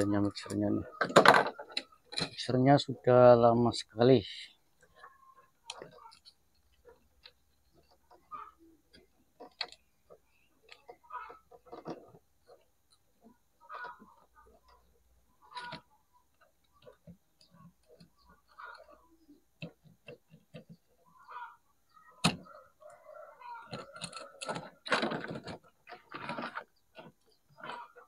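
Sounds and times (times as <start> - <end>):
rattling and scraping: 4.8 - 21.1, 23.6 - 28.0.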